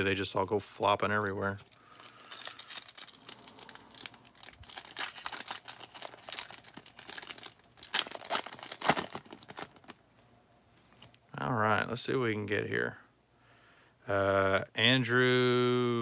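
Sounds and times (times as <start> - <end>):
foil wrapper crinkling: 0.0 - 10.0
foil wrapper tearing: 1.0 - 10.0.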